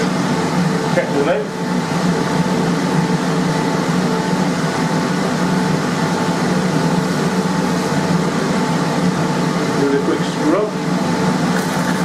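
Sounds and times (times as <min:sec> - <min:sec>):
forge blower humming: 0:00.0 - 0:12.0.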